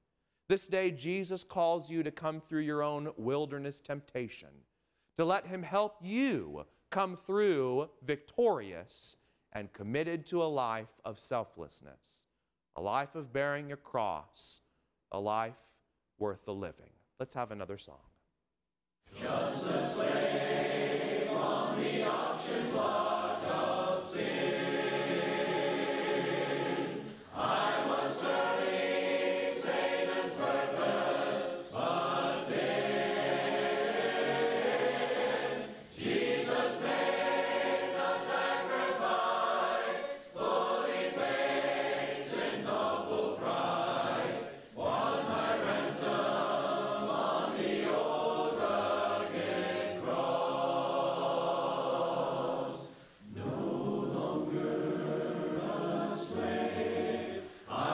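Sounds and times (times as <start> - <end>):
congregation singing a hymn: 19.1 - 57.9.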